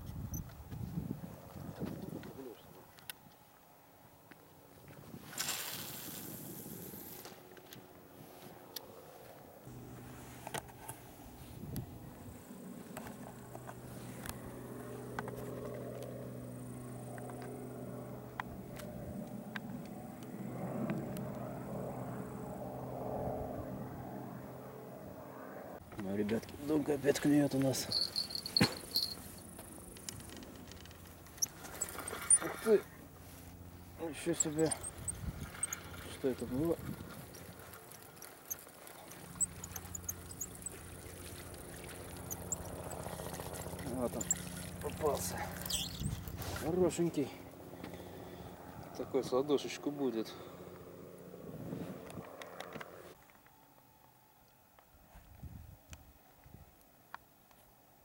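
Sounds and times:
helicopter flying overhead: 6.3s - 53.2s
fishing reel whirring: 27.8s - 32.8s, 34.0s - 46.6s.

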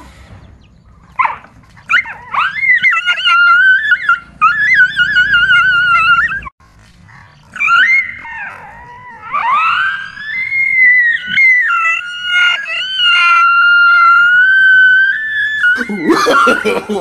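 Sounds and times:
dog whining and howling: 1.1s - 6.5s, 7.4s - 16.7s.

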